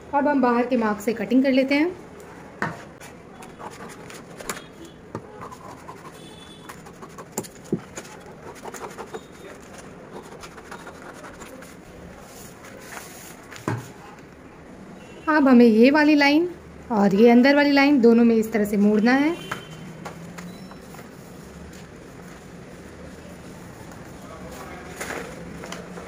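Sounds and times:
paper rustling: 3.0s - 14.0s, 23.8s - 26.0s.

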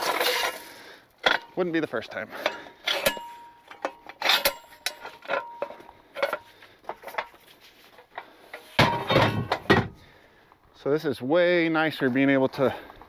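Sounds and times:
metal gear knocking and clanking: 2.4s - 6.4s.

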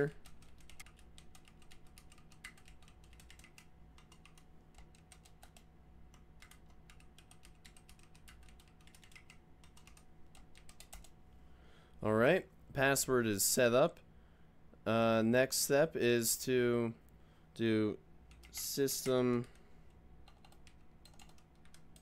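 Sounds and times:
faint computer keyboard typing: 0.0s - 11.2s, 18.2s - 22.0s.

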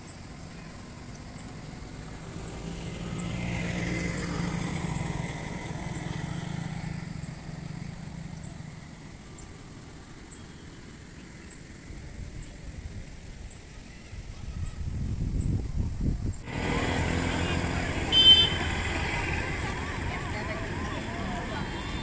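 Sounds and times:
outdoor background noise: 0.0s - 22.0s
vehicle passing by: 0.7s - 9.9s, 16.4s - 22.0s.

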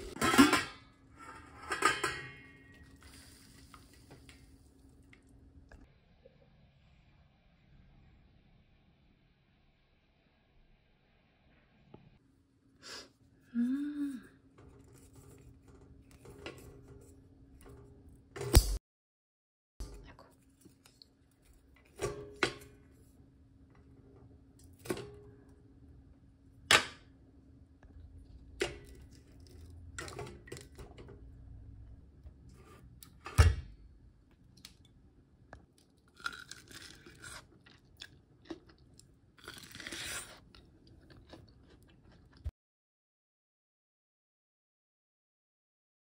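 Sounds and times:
utensils clinking against metal pot: 0.0s - 3.1s.

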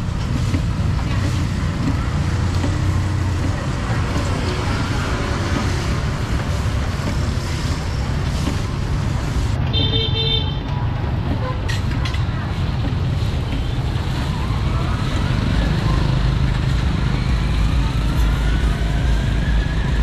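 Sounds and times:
street traffic rumble: 0.0s - 20.0s
vehicle horn toot: 9.7s - 10.6s.

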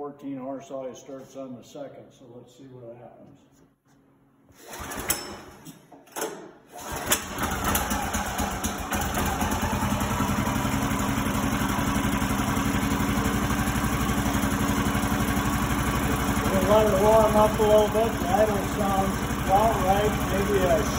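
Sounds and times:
small engine idling: 6.8s - 20.9s.

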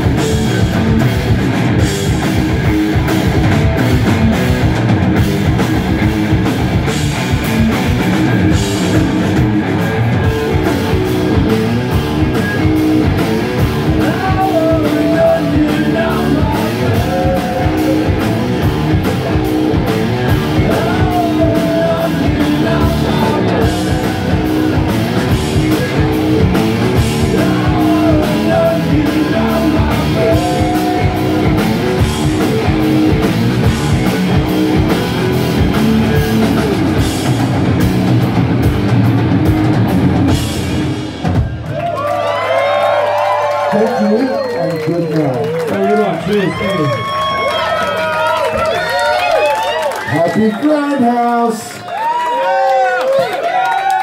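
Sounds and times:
drum kit beat: 0.0s - 43.1s
bass guitar: 0.0s - 50.5s
electric guitars: 0.0s - 50.5s
bending melody line: 5.9s - 40.5s.

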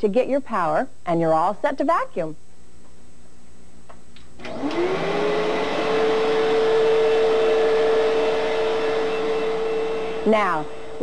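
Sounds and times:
vacuum cleaner motor whine: 4.4s - 11.0s.

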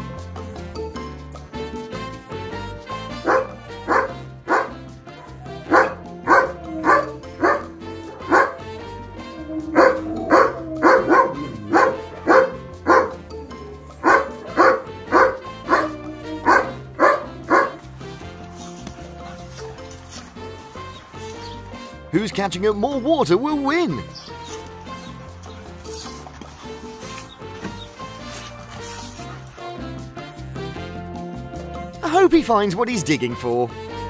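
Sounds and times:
background music: 0.0s - 34.0s
dog barking: 3.0s - 8.9s, 9.7s - 13.4s, 14.0s - 17.8s.

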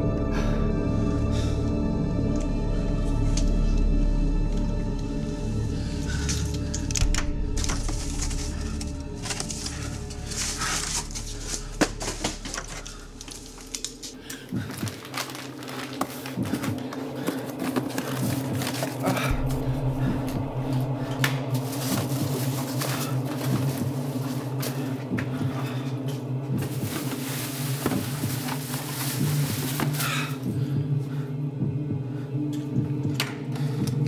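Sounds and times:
low droning music: 0.0s - 34.0s
rummaging through boxes and bags: 6.0s - 31.0s.

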